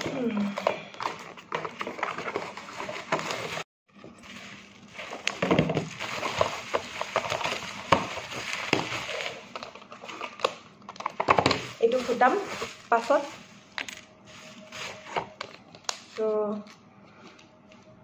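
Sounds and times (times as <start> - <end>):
packaging rustling with clicks: 4.2 - 16.3.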